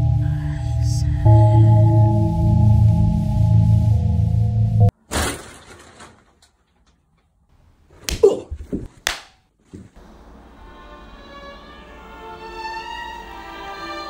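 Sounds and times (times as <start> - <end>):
quiet music: 0.0 - 4.9, 10.3 - 14.0
person falling thumps and knocks: 5.1 - 6.3, 8.0 - 10.0.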